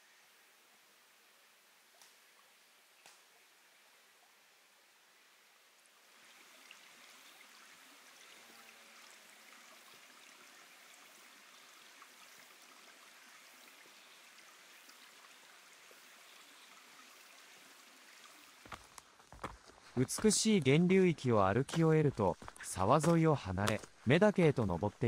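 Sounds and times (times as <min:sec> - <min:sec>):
stream flowing over rocks: 0:05.3 - 0:25.0.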